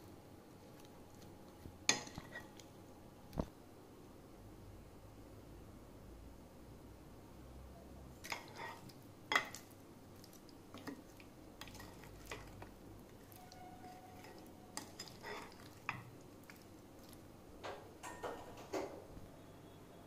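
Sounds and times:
wet squish of food: 0:08.2 - 0:17.3.

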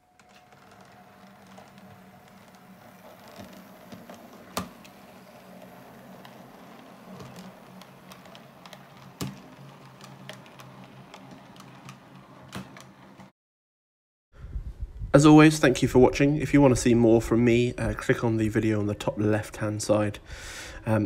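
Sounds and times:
model train motor hum: 0:00.7 - 0:12.4.

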